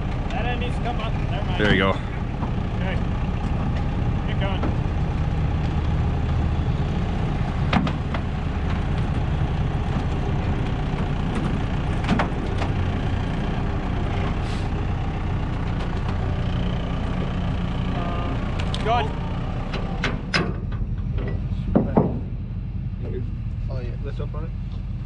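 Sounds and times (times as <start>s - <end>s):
knocks: 20.0s - 22.3s.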